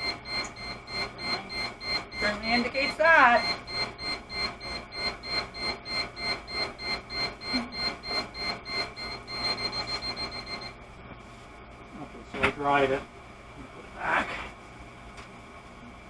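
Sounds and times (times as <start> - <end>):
high-pitched alarm beeping: 0.0 - 10.8.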